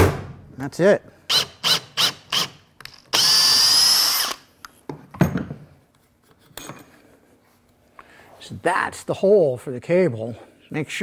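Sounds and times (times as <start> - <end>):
cordless drill drilling: 1.3 - 4.4.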